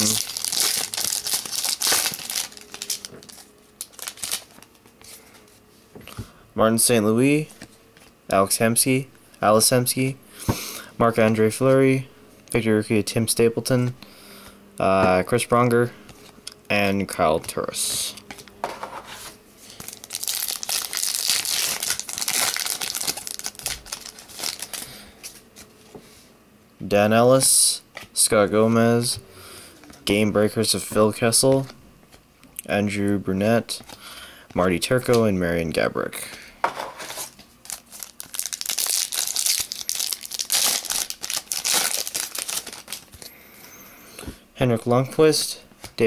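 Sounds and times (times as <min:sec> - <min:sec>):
foil wrapper crinkling: 0:00.0 - 0:04.8, 0:19.7 - 0:25.0, 0:37.1 - 0:43.2.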